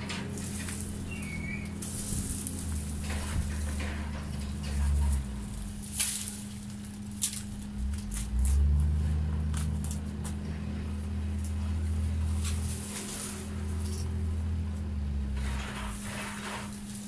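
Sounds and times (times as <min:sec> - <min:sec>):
low rumble: 0:00.0 - 0:06.7
dry branches rustling: 0:00.0 - 0:17.0
twigs cracking and snapping: 0:04.9 - 0:08.9, 0:09.5 - 0:10.4.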